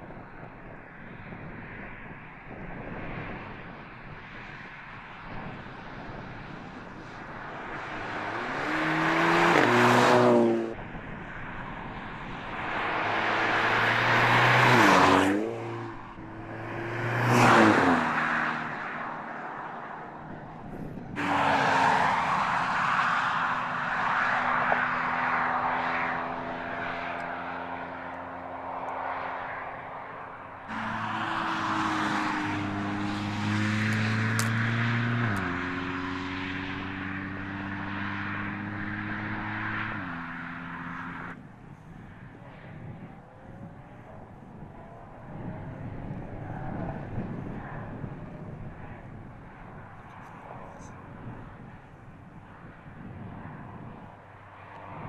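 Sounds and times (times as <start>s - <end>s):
car driving past at speed: 7.2s - 10.8s, 12.5s - 20.4s, 30.6s - 41.4s.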